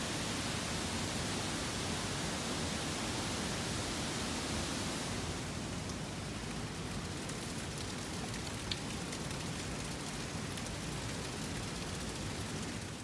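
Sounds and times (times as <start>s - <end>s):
water drips ticking: 5.9s - 13.0s
water splashing onto stones: 6.5s - 13.0s.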